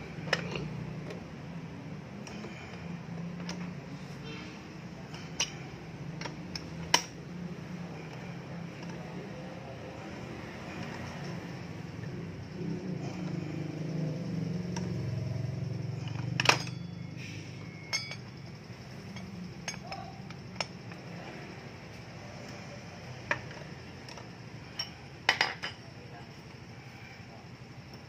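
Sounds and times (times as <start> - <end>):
metal hand tools clinking: 15.9 - 20.9.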